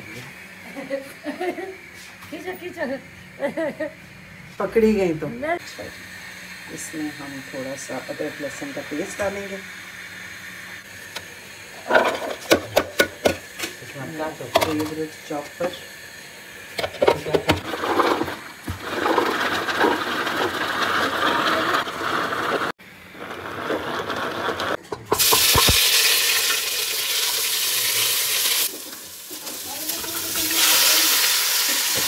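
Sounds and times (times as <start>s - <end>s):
kitchen handling clatter: 11.8s - 13.8s
beef sizzling in hot oil: 25.1s - 32.0s.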